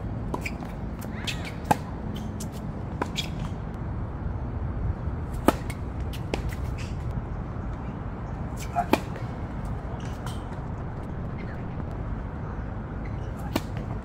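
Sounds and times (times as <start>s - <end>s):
low background rumble: 0.0s - 14.0s
tennis balls struck by rackets: 0.2s - 3.7s, 5.2s - 7.2s, 8.6s - 10.6s, 13.1s - 14.0s.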